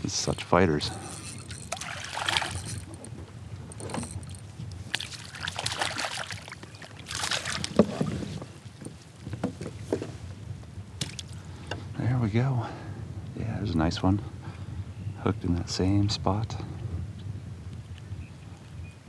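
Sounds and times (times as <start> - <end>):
water splashing: 0.9 - 3.1, 3.8 - 8.4.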